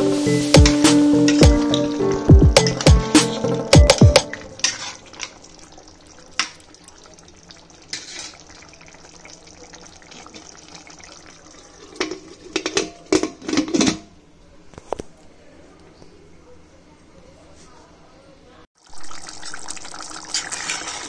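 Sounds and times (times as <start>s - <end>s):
curry sloshing and bubbling: 4.3s - 13.1s, 18.8s - 21.0s
metal lid clanking and scraping: 4.5s - 5.3s, 12.0s - 14.1s.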